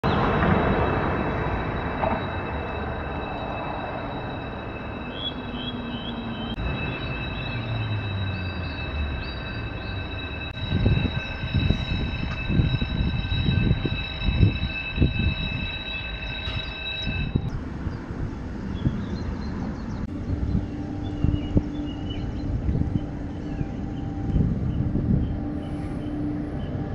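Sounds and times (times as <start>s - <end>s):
high-pitched whine: 0.0s - 26.9s
birds chirping: 3.9s - 10.9s, 15.8s - 26.9s.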